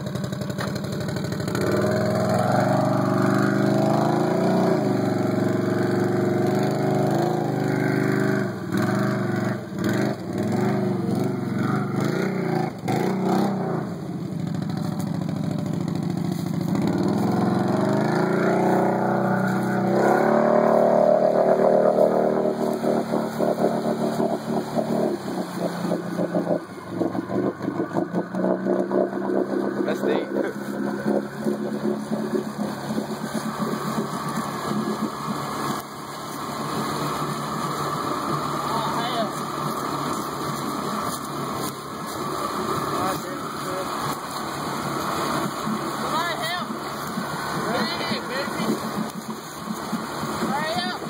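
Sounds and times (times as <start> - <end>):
atv engine revving: 0.0 - 51.0.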